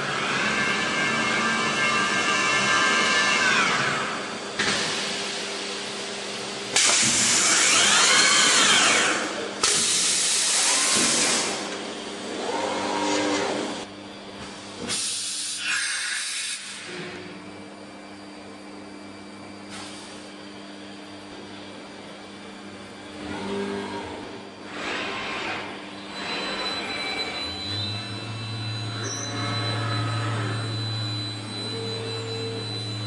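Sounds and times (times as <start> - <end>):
tool whine: 0.0 - 13.9, 22.4 - 33.0
machine cutting wooden beam: 6.8 - 9.3
machine hum: 20.4 - 33.0.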